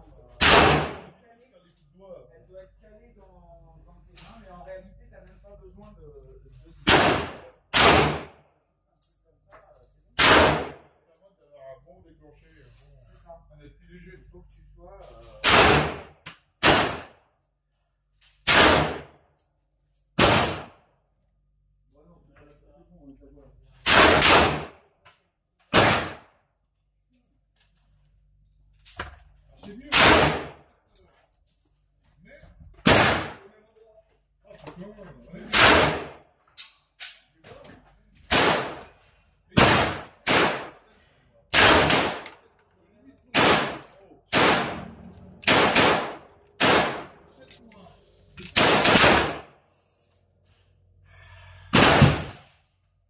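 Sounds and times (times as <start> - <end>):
pistol shots with echo: 0.4 - 1.1, 6.9 - 8.4, 10.2 - 10.8, 15.4 - 17.2, 18.5 - 19.1, 20.2 - 20.8, 23.8 - 24.8, 25.7 - 26.3, 29.9 - 30.6, 32.8 - 33.4, 35.5 - 36.2, 38.3 - 38.9, 39.6 - 40.8, 41.5 - 42.4, 43.3 - 44.8, 45.4 - 47.2, 48.6 - 49.5, 51.7 - 52.5.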